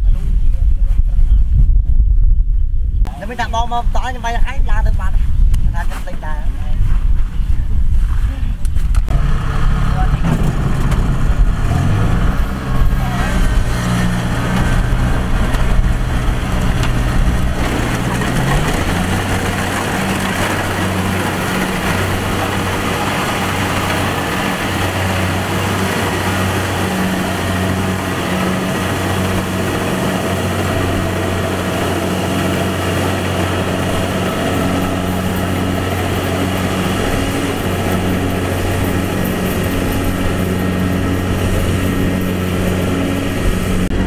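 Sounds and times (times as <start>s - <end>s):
diesel engine running: 8.9s - 44.0s.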